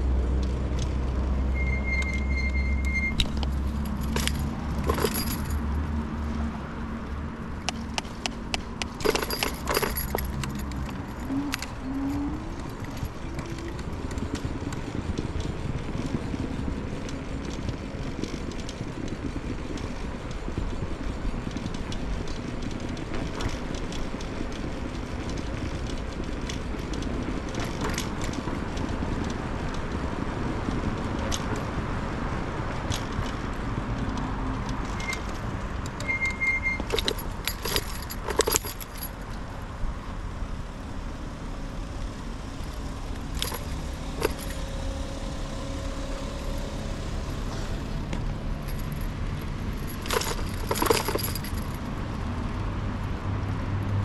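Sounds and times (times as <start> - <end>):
scooter riding rumble: 0.0 - 54.0
short high beeps: 1.5 - 3.3, 36.0 - 36.8
scooter rattling over bumps: 3.2 - 54.0.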